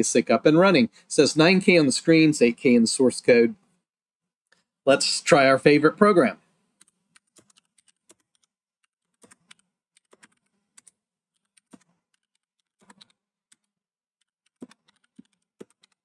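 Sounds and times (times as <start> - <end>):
computer keyboard typing: 6.8 - 16.0.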